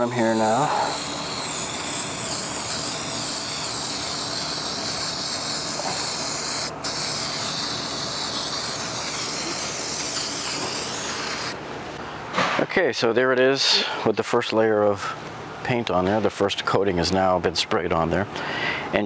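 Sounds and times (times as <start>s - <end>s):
aerosol can spraying: 0.0s - 11.6s.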